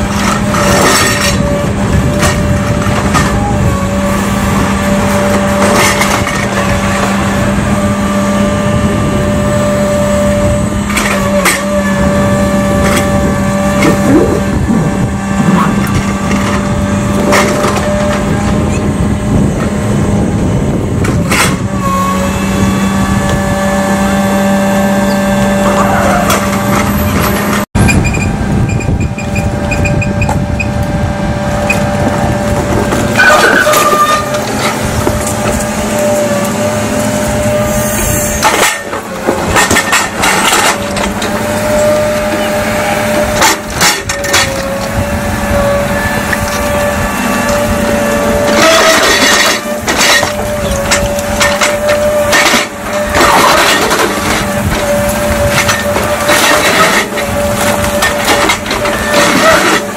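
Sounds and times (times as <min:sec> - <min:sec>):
diesel excavator engine running: 0:00.0 - 0:59.9
bricks and rubble crashing: 0:32.7 - 0:35.7, 0:38.4 - 0:44.8, 0:48.4 - 0:59.9.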